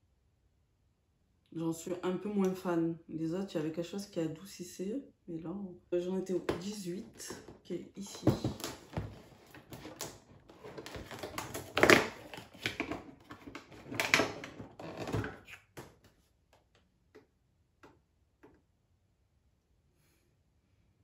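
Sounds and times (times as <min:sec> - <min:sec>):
cardboard tearing and rustling: 0:08.4 - 0:15.5.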